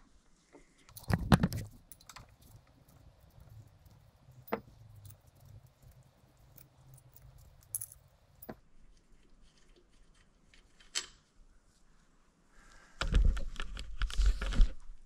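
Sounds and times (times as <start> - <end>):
metal tools clinking on metal: 0.9 - 8.6.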